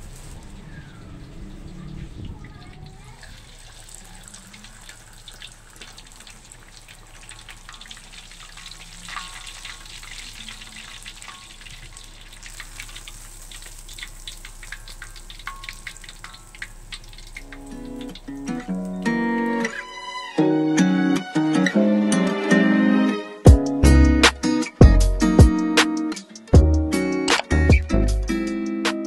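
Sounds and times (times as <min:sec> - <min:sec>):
fish deep-frying in oil: 0:00.0 - 0:19.9.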